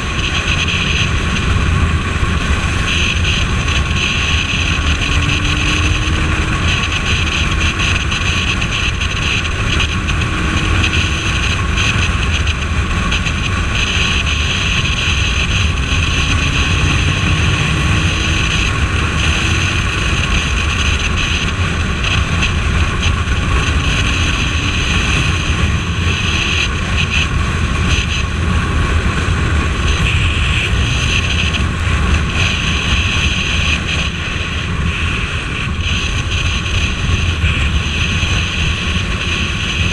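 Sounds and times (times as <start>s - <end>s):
motorcycle engine: 0.0s - 39.9s
road noise: 0.0s - 39.9s
wind rushing over microphone: 0.0s - 39.9s.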